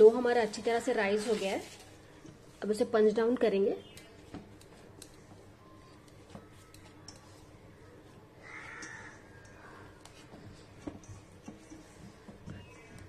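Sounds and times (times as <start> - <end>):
dough squishing being kneaded: 3.8 - 13.0.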